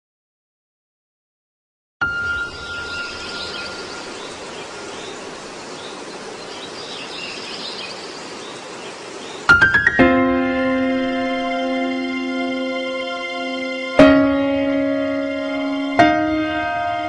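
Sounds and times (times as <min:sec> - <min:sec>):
piano music: 0:02.0 - 0:05.6, 0:09.5 - 0:17.0
small birds chirping: 0:02.1 - 0:10.0
steady background hiss: 0:02.1 - 0:17.0.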